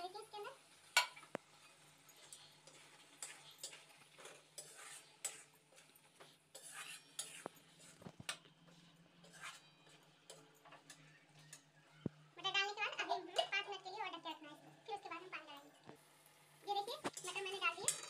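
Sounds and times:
metal ladle scraping a pan: 1.5s - 8.1s, 8.7s - 11.7s, 17.1s - 18.0s.

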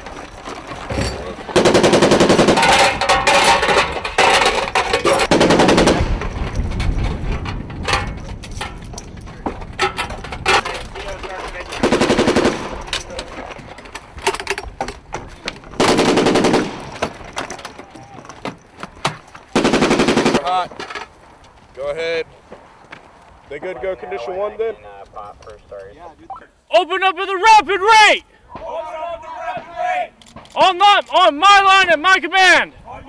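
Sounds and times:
machine gun automatic fire: 1.5s - 3.4s, 4.3s - 6.4s, 11.8s - 12.8s, 15.8s - 17.0s, 19.5s - 20.5s.

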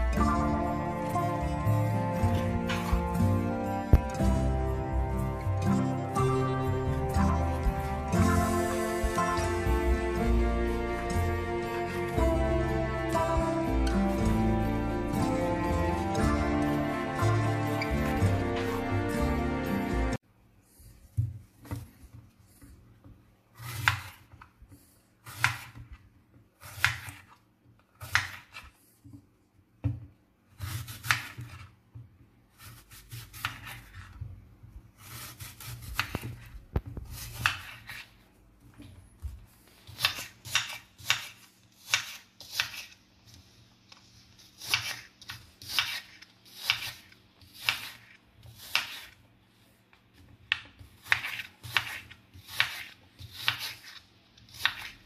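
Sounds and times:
knife slicing apple on board: 21.0s - 29.2s, 29.8s - 31.8s, 32.5s - 38.2s, 39.2s - 43.4s, 44.3s - 49.2s, 50.1s - 55.0s.

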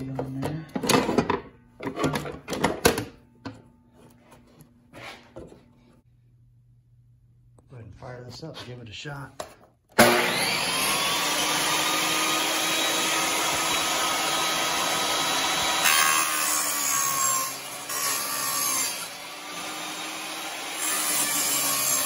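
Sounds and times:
table saw cutting wood: 10.0s - 22.0s.

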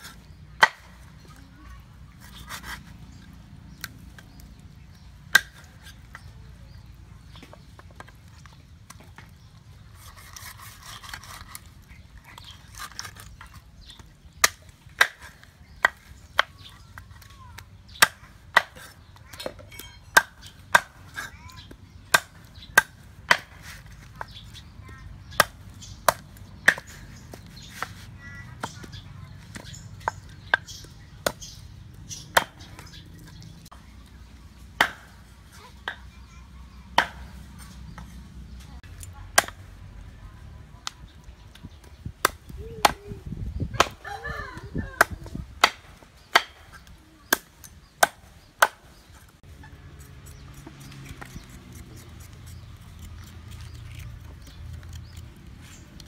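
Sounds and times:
cleaver chopping on wooden board: 34.8s - 35.2s, 37.0s - 38.1s, 45.0s - 48.8s.

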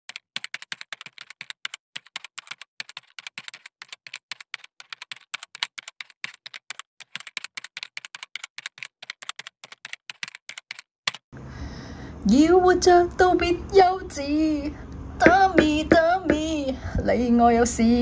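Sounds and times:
keyboard key clicks: 0.1s - 11.2s.

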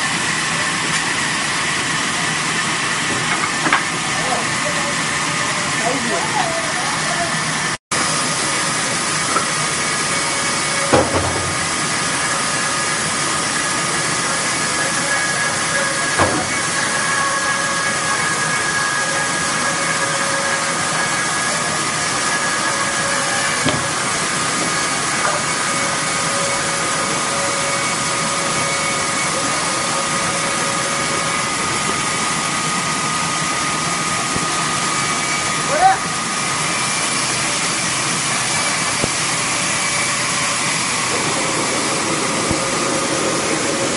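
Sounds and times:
machinery running: 0.0s - 43.9s.

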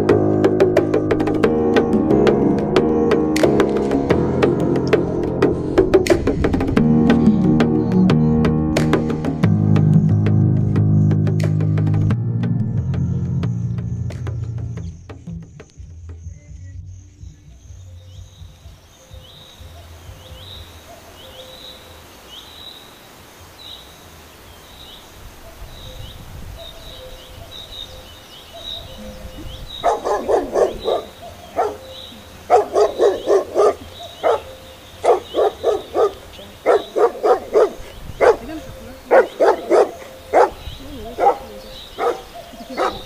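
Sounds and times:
small birds chirping: 0.0s - 43.0s
dog barking: 19.6s - 21.6s, 28.4s - 29.2s, 29.8s - 43.0s.

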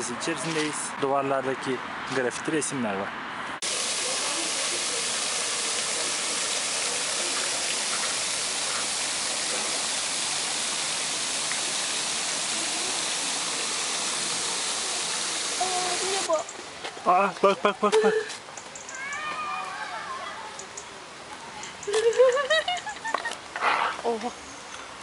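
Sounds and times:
fountain water spraying: 3.6s - 16.5s.

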